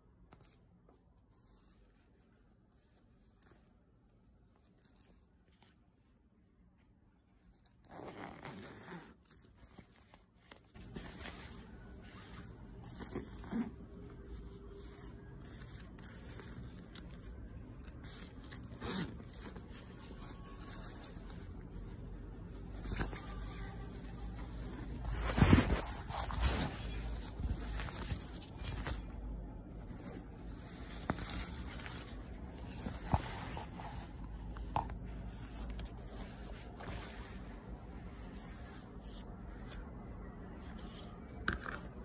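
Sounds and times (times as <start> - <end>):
nylon jacket rustling: 7.7 - 17.2, 18.0 - 34.6.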